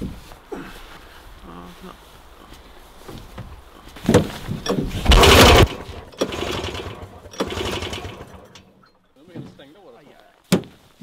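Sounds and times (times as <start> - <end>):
snowmobile engine cranking: 4.2 - 8.9.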